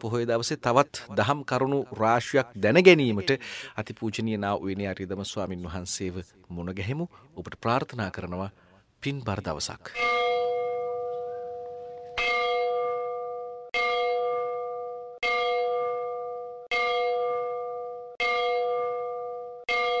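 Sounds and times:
bell ringing: 10.0 - 20.0.

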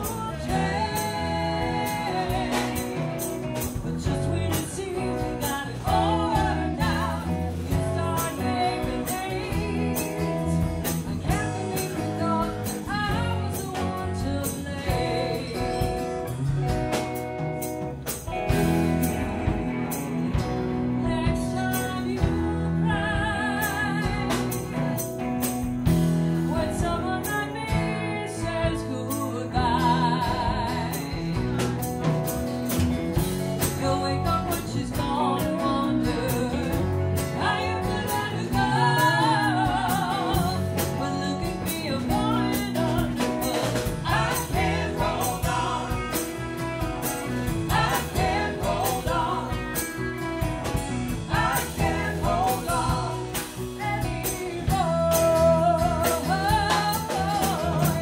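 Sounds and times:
voices singing with vibrato: 0.0 - 10.4, 42.0 - 58.0
drums: 0.0 - 58.0
electric and acoustic guitars: 0.0 - 58.0.

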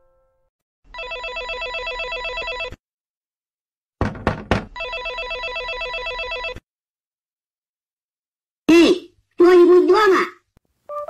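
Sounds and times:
electric doorbell trilling: 4.8 - 6.5.

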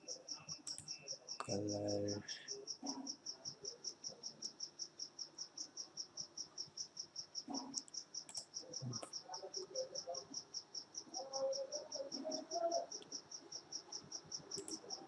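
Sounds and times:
faint clicks: 0.5 - 1.6, 7.6 - 9.2, 14.5 - 15.0.

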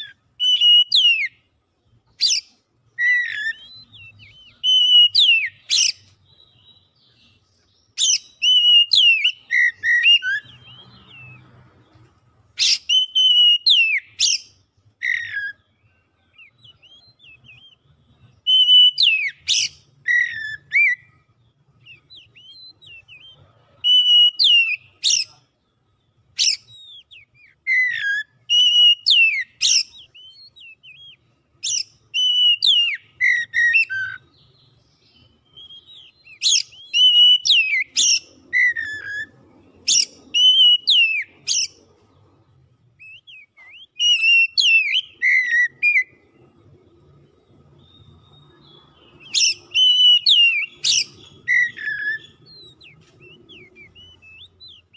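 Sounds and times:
bird singing whistled phrases: 0.0 - 1.5, 2.1 - 11.6, 12.6 - 25.4, 26.3 - 41.9, 43.0 - 46.3, 47.7 - 54.9.

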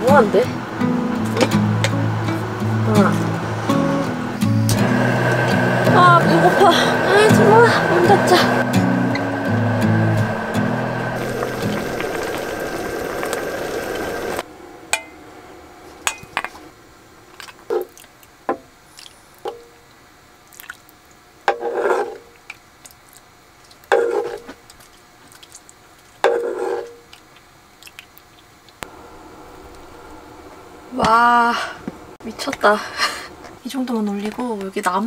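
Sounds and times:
loud steady rushing noise: 0.0 - 14.8
liquid pouring: 11.2 - 14.4.

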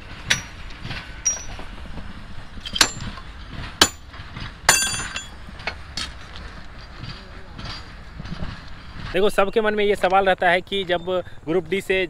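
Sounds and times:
steel bar striking rail: 0.0 - 6.2.

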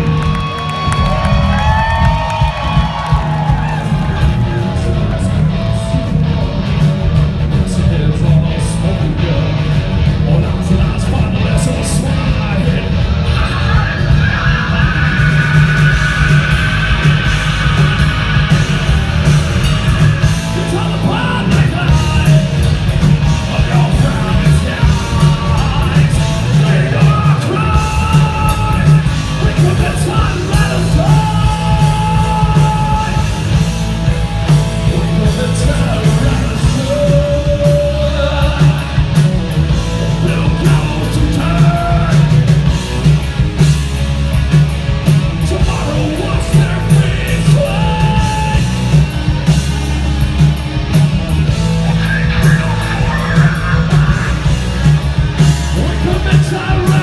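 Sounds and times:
heavy metal band playing live: 0.0 - 57.0
person singing: 20.2 - 33.6, 34.8 - 39.2, 51.9 - 54.7, 55.6 - 57.0.

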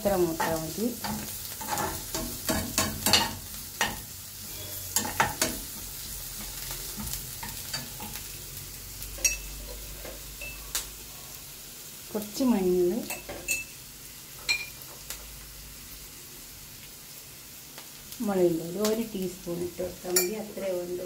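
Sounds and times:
onions sizzling in hot oil: 0.0 - 21.0
steel spoon scraping and clicking on pan: 0.4 - 8.3, 9.1 - 10.9.

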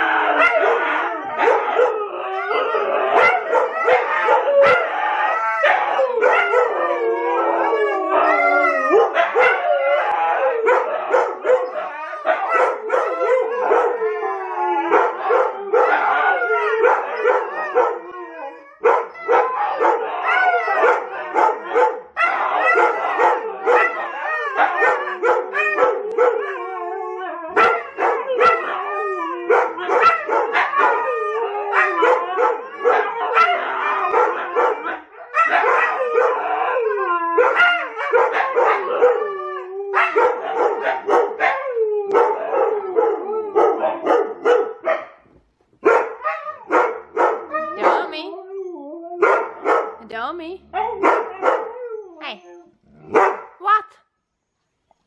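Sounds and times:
dogs howling in chorus: 0.0 - 45.1, 45.8 - 50.0, 50.6 - 53.4
dogs barking and yipping: 0.0 - 45.2, 45.8 - 50.0, 50.6 - 53.8.

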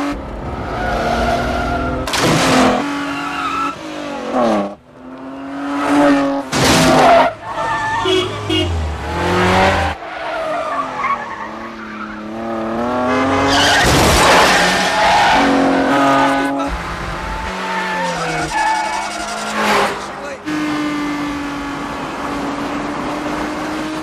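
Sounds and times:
car engines revving: 0.0 - 24.0
long loud tyre skid: 17.4 - 20.2
tyres squealing: 17.4 - 20.4.

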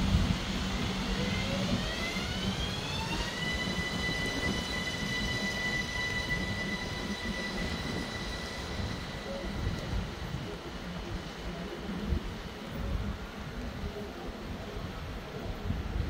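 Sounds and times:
electric train motor whine: 0.0 - 11.5
train rolling rumble: 0.0 - 16.0.

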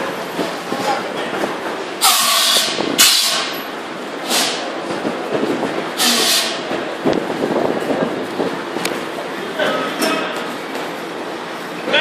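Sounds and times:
water hissing into steam: 6.0 - 6.6.

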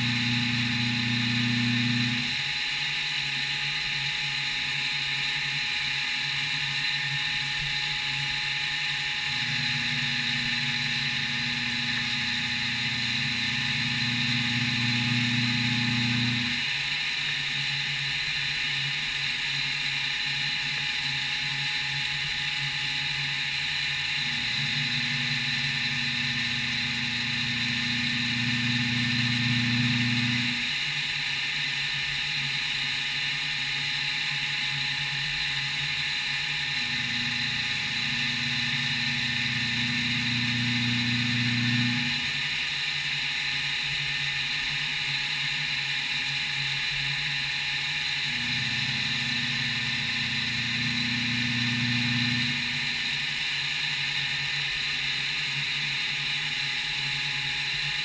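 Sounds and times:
low machine hum: 0.0 - 2.8, 6.4 - 17.6, 20.8 - 31.2, 34.8 - 42.6, 47.9 - 53.3
milling machine whine: 0.0 - 58.0.

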